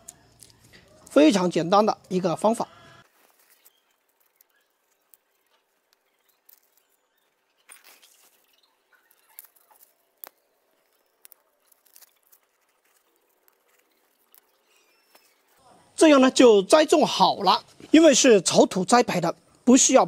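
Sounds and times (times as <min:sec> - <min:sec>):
fingers rustling in soil: 0:00.0 - 0:01.5, 0:03.0 - 0:15.6.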